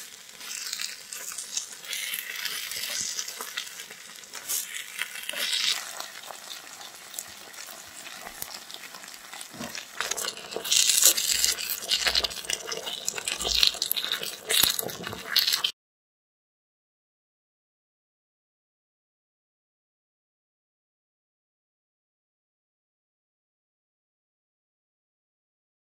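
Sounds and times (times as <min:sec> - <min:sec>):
food sizzling in a pan: 0:00.0 - 0:15.8.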